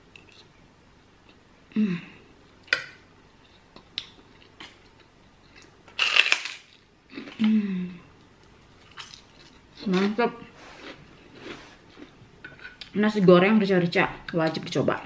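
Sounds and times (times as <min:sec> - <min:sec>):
person humming mmm: 0:01.7 - 0:02.3, 0:07.2 - 0:08.1.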